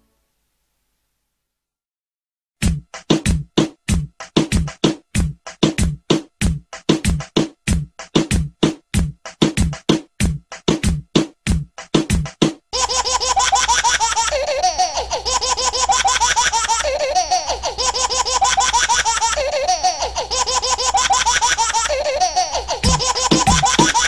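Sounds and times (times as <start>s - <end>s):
high-pitched giggling laughter: 12.8s - 24.0s.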